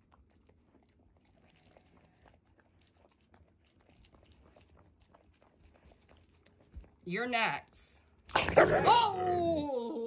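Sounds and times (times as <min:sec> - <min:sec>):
puppy crunching eggshell: 0:00.0 - 0:07.1.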